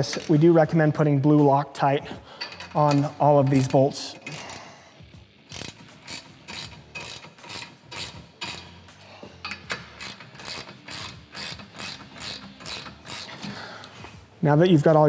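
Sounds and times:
socket ratchet clicking: 2.4s - 4.7s, 5.4s - 14.0s.

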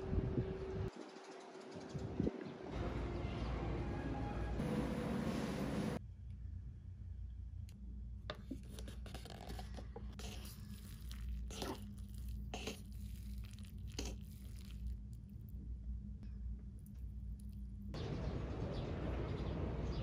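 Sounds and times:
steady low hum: 4.6s - 19.3s
chopsticks stirring noodles: 9.4s - 15.0s.

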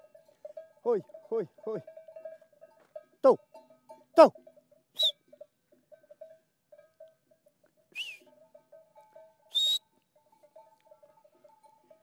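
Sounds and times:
shepherd's high whistle: 5.0s - 5.2s, 8.0s - 8.2s, 9.5s - 9.9s.

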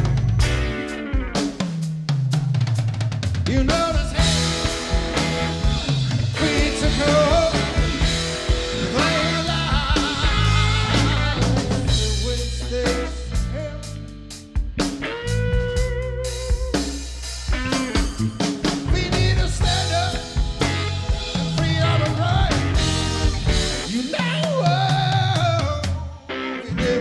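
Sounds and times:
bass guitar: 0.0s - 27.0s
drum kit: 0.0s - 27.0s
electric guitar: 0.0s - 27.0s
organ quick runs: 2.8s - 13.6s, 15.2s - 25.7s.

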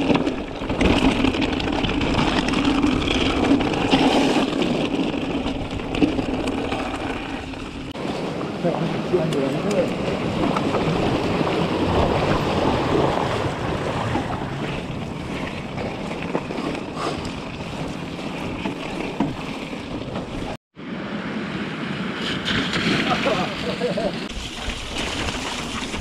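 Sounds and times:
tyres rolling on gravel: 0.0s - 20.6s, 22.0s - 26.0s
wind buffeting microphone: 0.0s - 20.6s
bike tyres splashing through stream: 22.1s - 26.0s.

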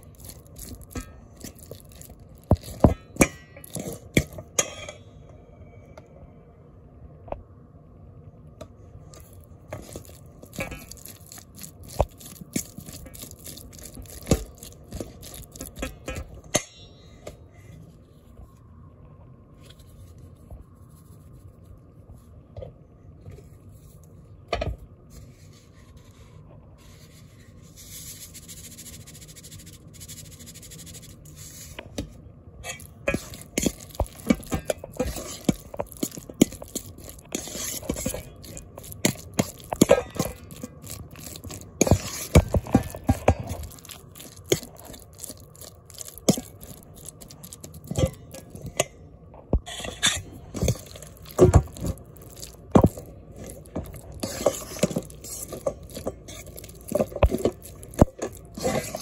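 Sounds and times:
wet squishing: 0.0s - 4.3s, 9.1s - 16.2s, 32.7s - 48.6s, 50.4s - 59.0s
fork scraping metal bowl: 0.0s - 4.9s, 9.2s - 16.4s, 32.6s - 48.6s, 49.7s - 59.0s.

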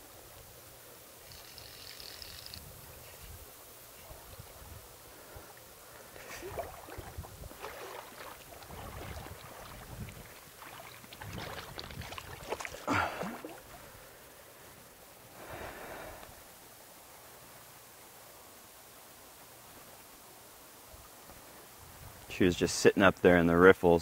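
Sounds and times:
creek water splashing: 3.9s - 14.4s.

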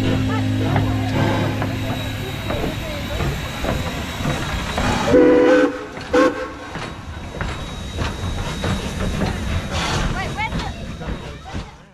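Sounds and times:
rail noise: 0.0s - 11.9s
steam engine chuffing: 0.0s - 11.9s
steam locomotive whistle: 4.8s - 6.8s.

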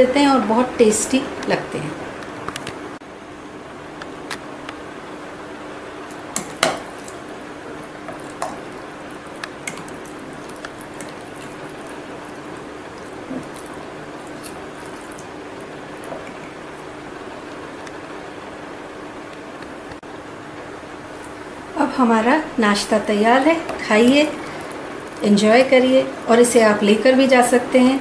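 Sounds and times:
steady low hum: 0.0s - 28.0s
wet squishing of stirred oats: 6.1s - 17.8s.

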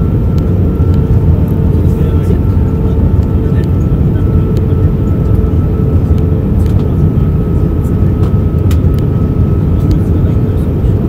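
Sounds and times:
airliner cabin rumble: 0.0s - 11.0s
faint turbofan hum: 0.0s - 11.0s.

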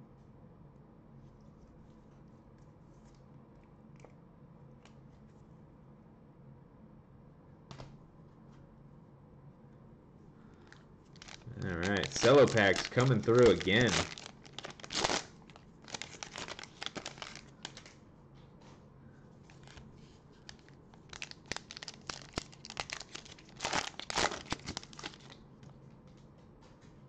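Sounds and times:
plastic wrappers tearing and crinkling: 11.1s - 18.0s, 19.5s - 19.9s, 20.5s - 25.4s.

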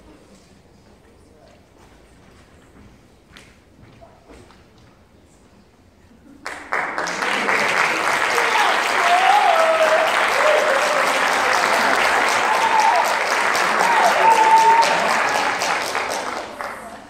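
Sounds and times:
audience applauding: 6.4s - 17.0s
voices cheering: 7.4s - 16.8s.

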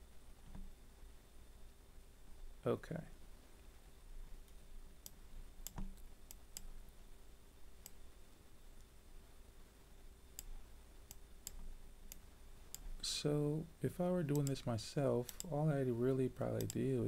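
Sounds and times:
faint computer mouse clicks: 4.4s - 6.7s, 10.4s - 12.9s, 14.3s - 14.6s, 15.2s - 15.6s, 16.6s - 16.9s.

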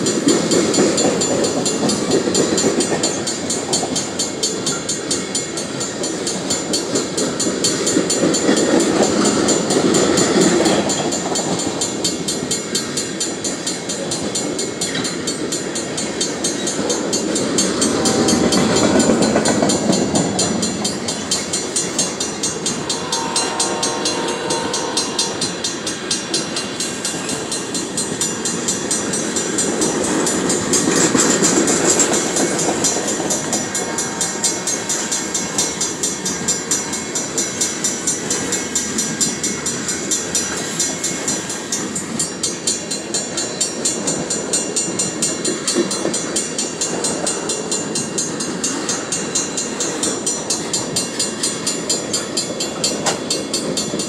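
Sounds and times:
crossing bell ringing: 0.0s - 54.0s
rhythmic clacking over rail joints: 0.0s - 54.0s
train wheels on rails: 0.0s - 54.0s
held tone: 17.8s - 27.4s.

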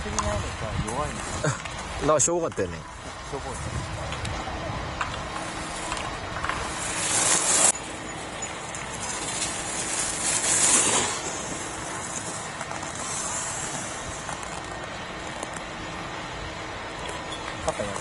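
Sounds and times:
skis scraping on hard snow: 5.4s - 7.8s, 8.8s - 14.7s.

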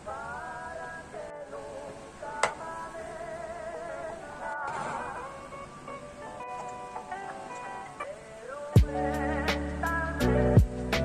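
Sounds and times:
wavering melodic background music: 3.9s - 11.0s.

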